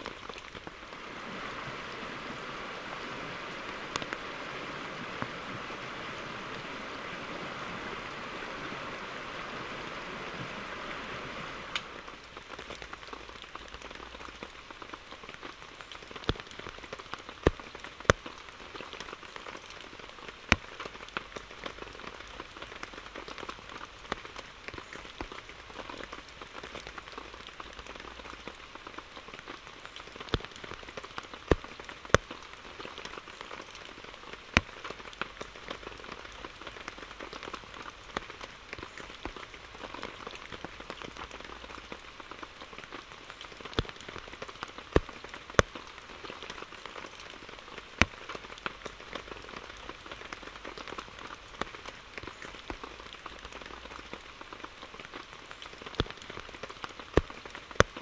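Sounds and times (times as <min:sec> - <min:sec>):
rain pattering: 0:00.0 - 0:58.0.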